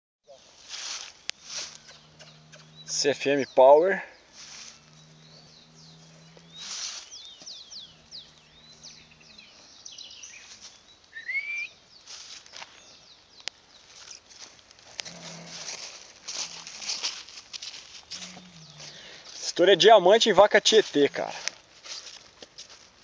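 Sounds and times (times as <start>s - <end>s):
small birds chirping: 0.3s - 21.6s
rising bird call: 1.4s - 11.8s, 18.1s - 19.2s.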